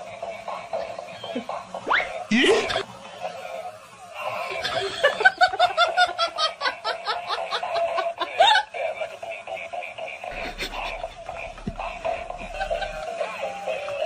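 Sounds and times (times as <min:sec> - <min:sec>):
person laughing: 0:02.3 - 0:02.8, 0:04.4 - 0:09.0, 0:10.2 - 0:13.3.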